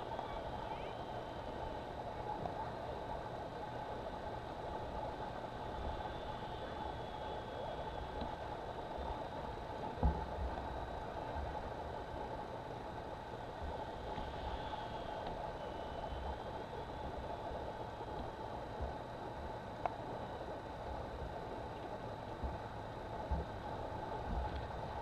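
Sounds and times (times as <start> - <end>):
model plane motor whine: 5.5 - 9.4, 13.6 - 18.3.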